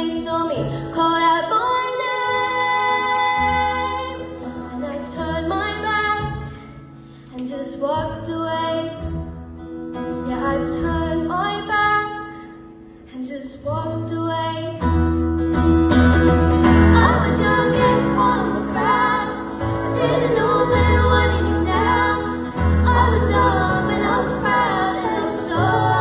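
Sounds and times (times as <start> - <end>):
woman singing: 0.0 - 6.7, 7.3 - 9.2, 10.2 - 12.5, 13.1 - 14.8, 16.8 - 26.0
keyboard: 14.8 - 26.0
strummed acoustic guitar: 14.8 - 26.0.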